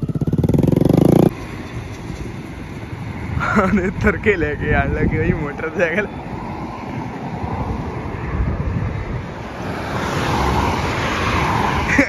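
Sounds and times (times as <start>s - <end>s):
highway traffic: 0.0s - 12.0s
car driving past close by: 6.5s - 11.9s.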